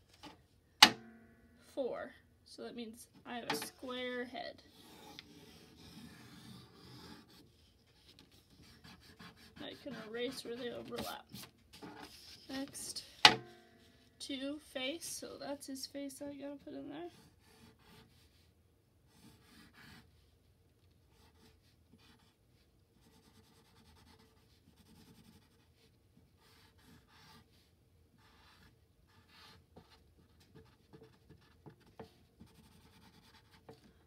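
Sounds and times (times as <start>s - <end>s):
pencil scratching on paper: 3.3s - 13.0s, 17.1s - 18.5s, 19.1s - 20.2s, 21.1s - 22.4s, 23.0s - 34.0s.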